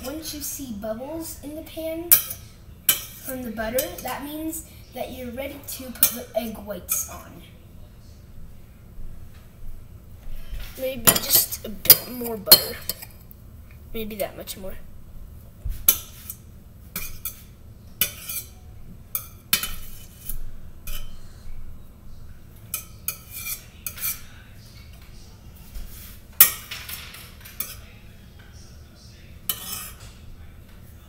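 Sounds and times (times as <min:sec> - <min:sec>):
knife clinking and scraping on pan: 0:11.0 - 0:13.2, 0:17.0 - 0:21.2, 0:22.7 - 0:24.3, 0:29.5 - 0:30.1.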